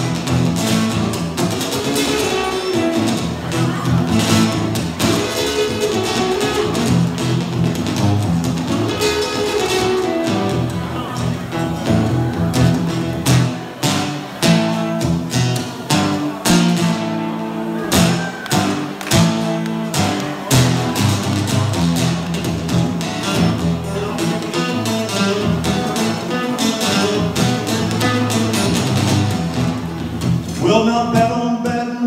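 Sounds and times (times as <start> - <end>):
acoustic blues guitar: 0.0 - 32.0.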